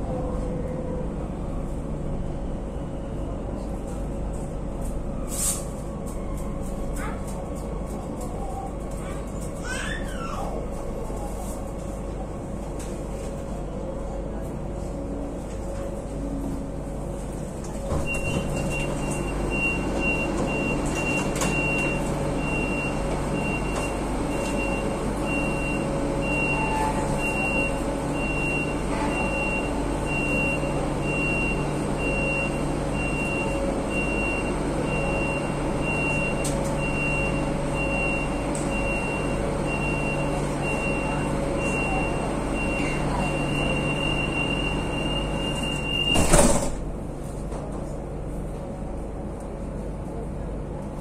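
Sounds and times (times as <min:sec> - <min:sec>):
train rumble and hum: 0:00.0 - 0:51.0.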